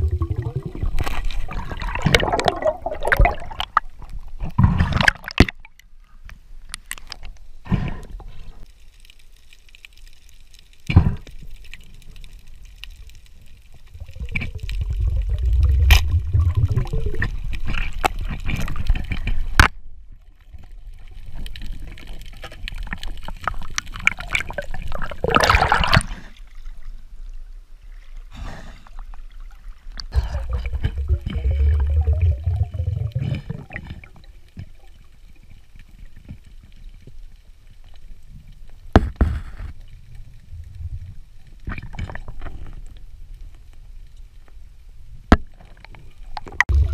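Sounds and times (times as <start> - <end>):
water gurgling and sloshing: 0.0 - 5.9, 12.7 - 28.3, 28.9 - 37.6, 45.5 - 46.9.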